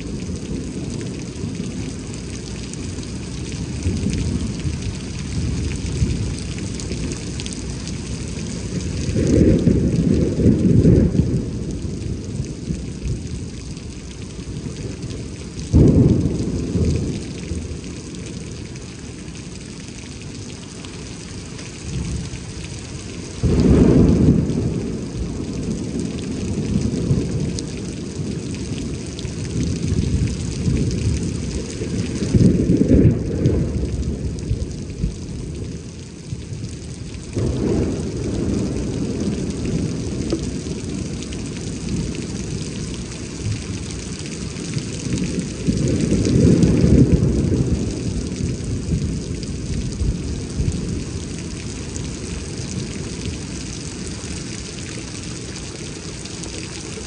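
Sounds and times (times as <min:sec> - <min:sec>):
rolling thunder rumbles: 0:00.0 - 0:19.7, 0:23.3 - 0:54.1
steady rain hissing: 0:00.0 - 0:57.0.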